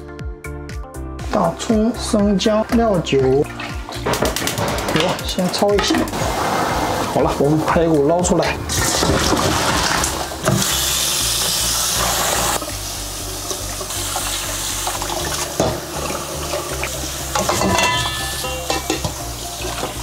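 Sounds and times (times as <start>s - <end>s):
soft background music: 0.0s - 20.0s
tap water splashing in colander: 8.8s - 10.8s, 13.4s - 20.0s.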